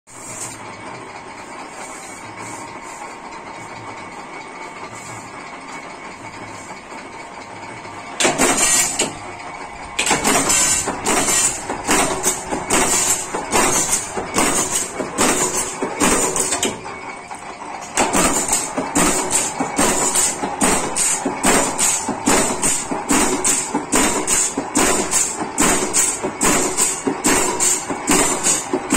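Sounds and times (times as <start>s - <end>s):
power press humming: 4.1s - 28.9s
loud metal punching strokes: 8.2s - 9.2s, 9.9s - 16.8s, 17.9s - 28.9s.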